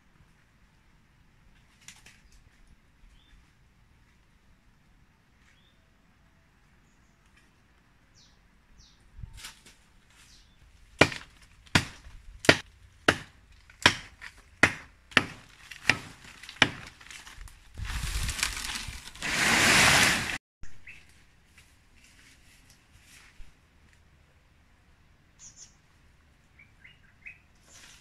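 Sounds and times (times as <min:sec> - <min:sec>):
blade chopping tree trunk: 0:11.0 - 0:17.4
tree crashing through branches: 0:13.7 - 0:20.4.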